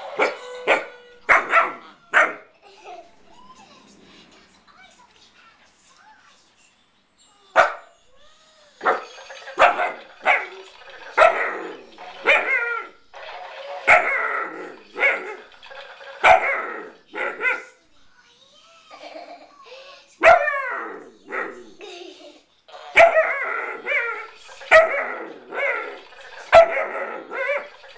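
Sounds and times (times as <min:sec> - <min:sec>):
puppy barking and yipping: 0:00.0 - 0:02.5, 0:07.6 - 0:07.9, 0:08.8 - 0:13.0, 0:13.8 - 0:15.5, 0:16.2 - 0:17.8, 0:20.2 - 0:21.8, 0:22.9 - 0:27.9.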